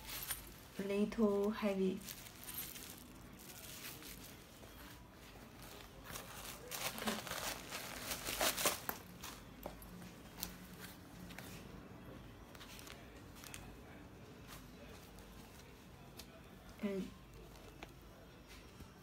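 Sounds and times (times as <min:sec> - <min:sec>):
hands rustling packaging: 0:00.0 - 0:11.6.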